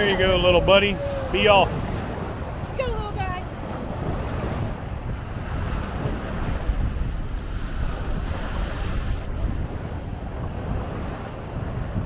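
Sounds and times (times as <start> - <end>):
small waves washing on sandy beach: 0.0 - 12.0
wind buffeting microphone: 0.0 - 12.0.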